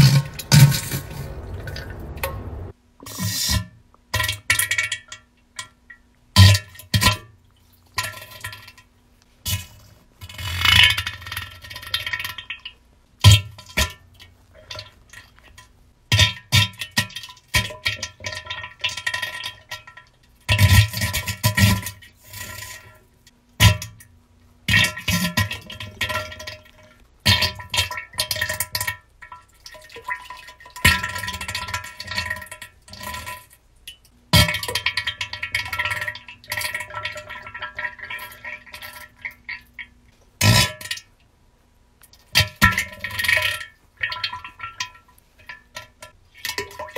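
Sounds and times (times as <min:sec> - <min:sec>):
wet sputtering flatulence: 0:00.0 - 0:02.7, 0:40.4 - 0:40.8.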